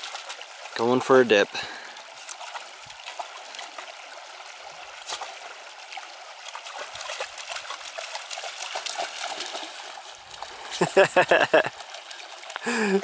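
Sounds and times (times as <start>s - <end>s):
dog splashing through water: 0.0s - 0.8s, 2.3s - 10.8s
creek water trickling: 0.0s - 13.0s.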